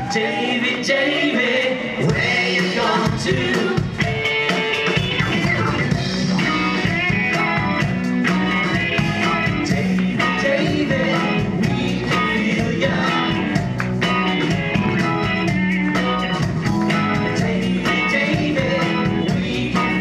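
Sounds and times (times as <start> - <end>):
man singing: 0.0 - 4.2, 8.6 - 13.7, 17.1 - 20.0
live rock band playing: 2.0 - 20.0.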